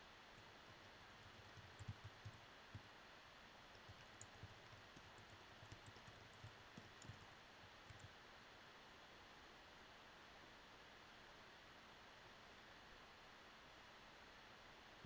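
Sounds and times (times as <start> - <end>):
typing on a keyboard: 0.4 - 2.9, 3.7 - 8.2.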